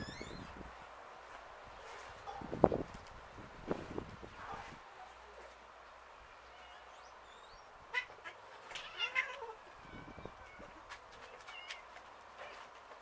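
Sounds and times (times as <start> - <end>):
cats meowing: 6.4 - 7.0, 7.9 - 12.8.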